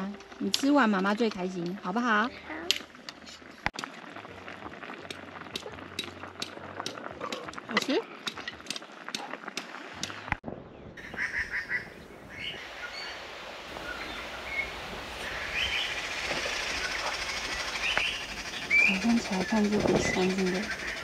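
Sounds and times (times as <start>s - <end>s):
birds chirping: 10.6s - 21.0s
steady background hiss: 11.0s - 21.0s.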